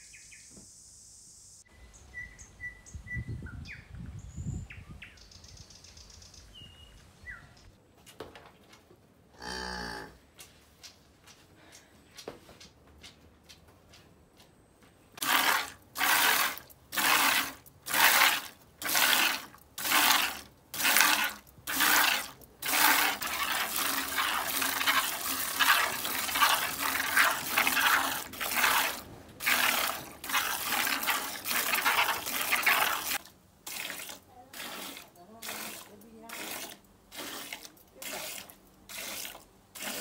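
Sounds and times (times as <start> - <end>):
milk squirting into a bucket: 15.2 - 40.0.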